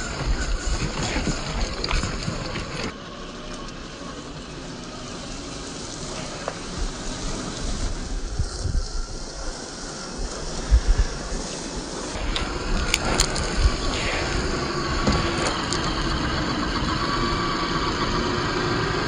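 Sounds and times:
gravel crunching under tyres: 0:00.0 - 0:19.0.

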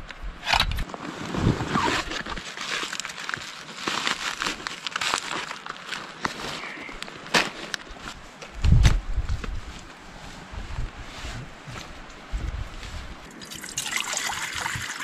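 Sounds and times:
backpack fabric rustling: 0:00.9 - 0:13.2
foil pouch crinkling: 0:01.8 - 0:08.0.

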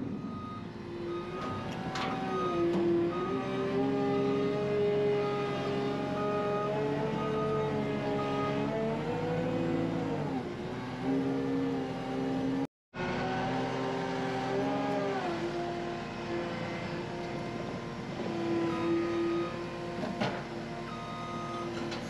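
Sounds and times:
skid steer engine running: 0:12.3 - 0:22.0.

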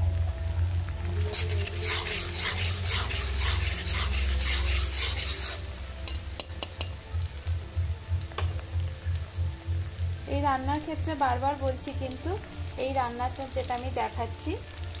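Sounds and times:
oil sizzling: 0:00.0 - 0:15.0
metal spatula scraping pan: 0:01.3 - 0:06.2.

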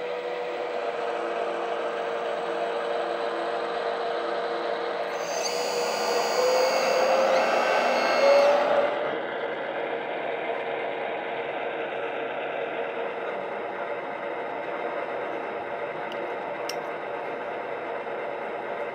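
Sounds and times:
faint steady hum: 0:00.0 - 0:09.9
toy excavator whirring and hissing: 0:05.1 - 0:09.2.

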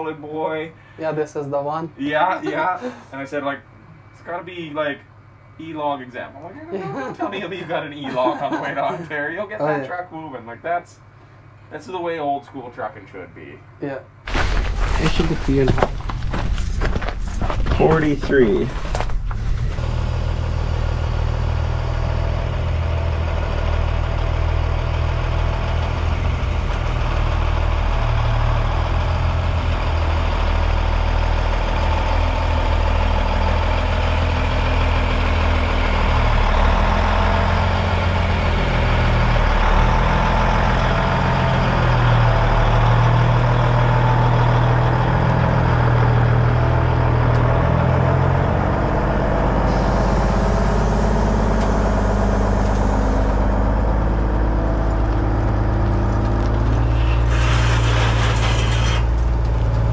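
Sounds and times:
truck diesel engine running: 0:14.1 - 0:59.9.

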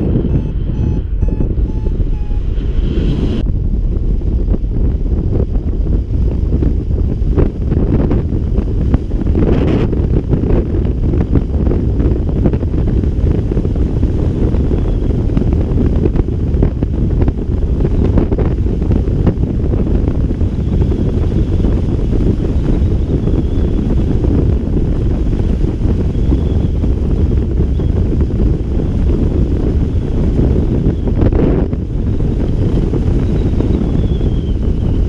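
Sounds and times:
wind rushing over microphone: 0:00.0 - 0:35.0.

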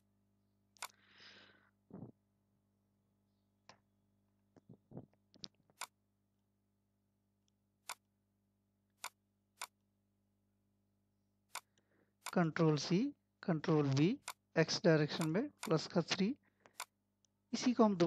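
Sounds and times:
mouse and keyboard clicks: 0:00.8 - 0:01.0, 0:07.8 - 0:08.0, 0:09.0 - 0:09.8, 0:11.5 - 0:12.4, 0:15.1 - 0:15.8.

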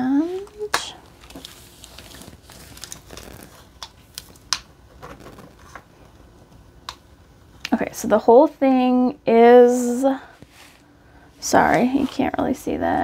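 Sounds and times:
plastic film crinkling: 0:00.2 - 0:06.1.

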